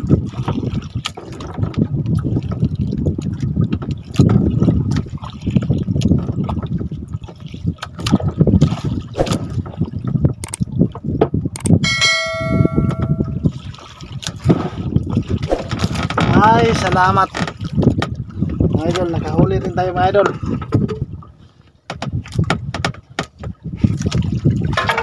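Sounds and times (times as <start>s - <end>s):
water sloshing around boat: 0.0s - 25.0s
short bell-like ringing tone: 11.8s - 13.5s
knocks against boat: 21.9s - 23.6s.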